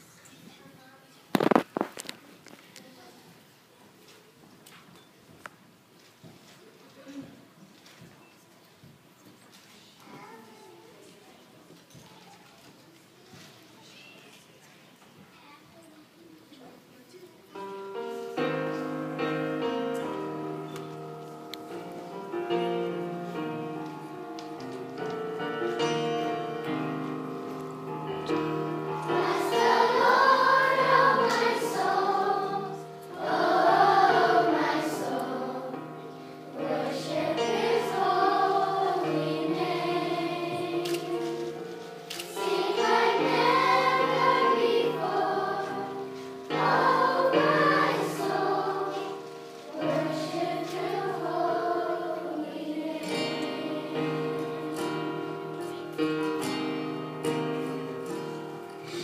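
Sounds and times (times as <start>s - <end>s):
children's choir singing: 17.5s - 59.0s
instrumental accompaniment: 17.6s - 59.0s.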